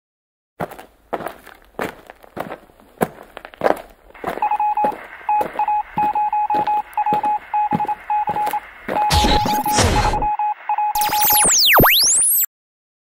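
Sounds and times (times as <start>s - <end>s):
electronic beep pulses: 4.3s - 12.5s.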